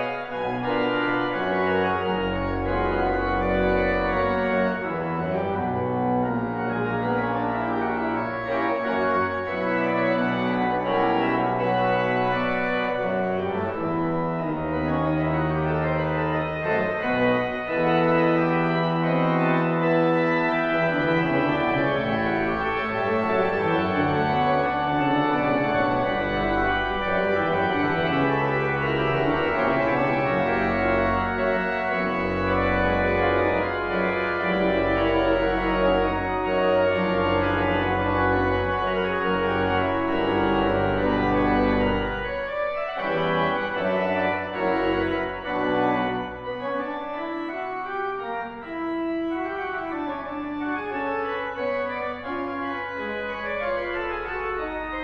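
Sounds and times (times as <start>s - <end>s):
pipe organ playing: 0.0s - 55.0s.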